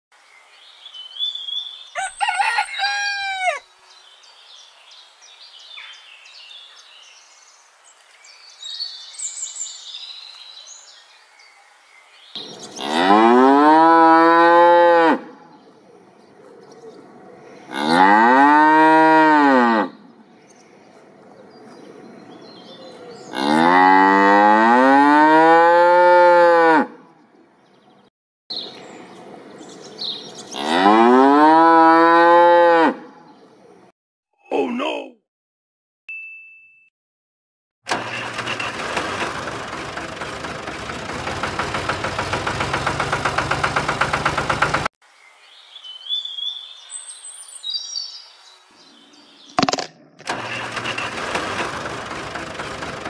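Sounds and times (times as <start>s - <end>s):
cow mooing: 12.7s - 15.4s, 17.7s - 20.0s, 23.2s - 27.0s, 30.5s - 33.1s.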